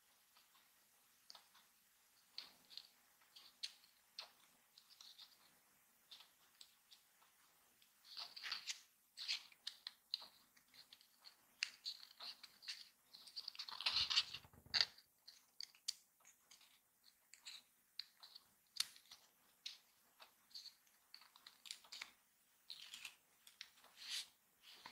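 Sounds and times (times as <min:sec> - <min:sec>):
paper crinkling rustle: 0:08.0 - 0:24.9
paper crackles and clicks: 0:08.1 - 0:24.9.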